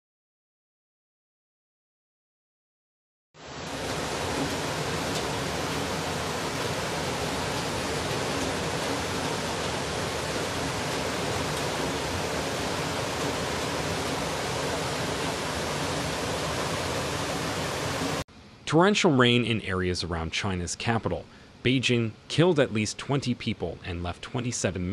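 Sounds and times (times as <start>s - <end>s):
water rushing: 3.4s - 18.2s.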